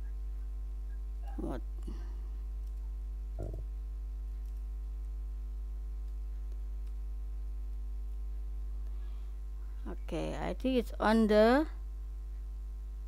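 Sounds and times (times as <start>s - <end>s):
electrical mains hum: 0.0s - 13.0s
short voice sound: 3.4s - 3.6s.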